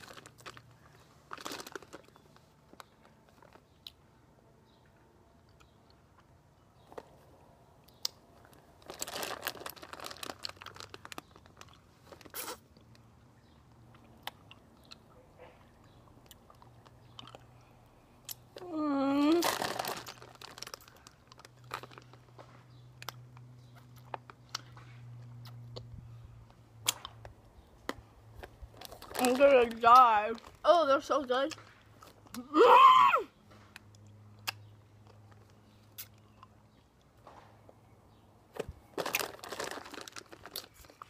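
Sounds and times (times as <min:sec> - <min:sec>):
candy wrapper crinkling: 0:00.0 - 0:03.6, 0:08.4 - 0:12.6, 0:19.2 - 0:22.4, 0:28.4 - 0:30.7, 0:38.6 - 0:41.0
mouth clicks and chewing: 0:07.8 - 0:09.0, 0:09.8 - 0:18.6, 0:19.9 - 0:29.2, 0:33.7 - 0:37.1.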